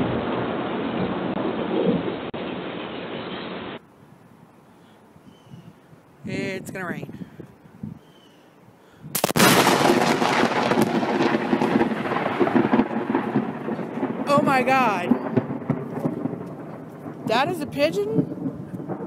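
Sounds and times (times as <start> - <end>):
thunder crack and rumble: 0.0 - 3.1, 9.1 - 19.0.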